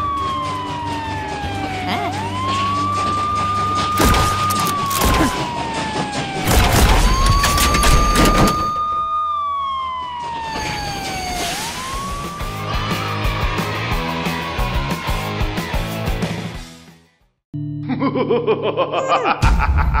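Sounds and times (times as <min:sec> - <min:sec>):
police siren wailing: 0:00.0 - 0:15.0.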